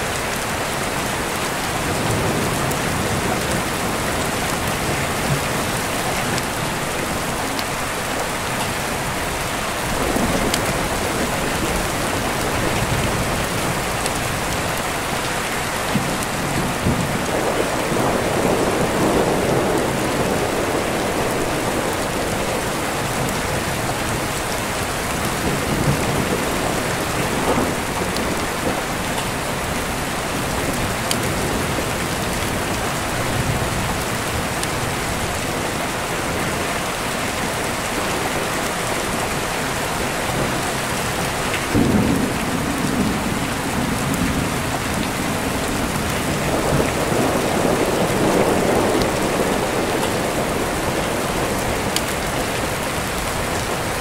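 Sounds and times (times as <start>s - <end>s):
steady rain falling: 0.0s - 54.0s
deep rolling thunder: 15.9s - 34.9s, 41.2s - 54.0s.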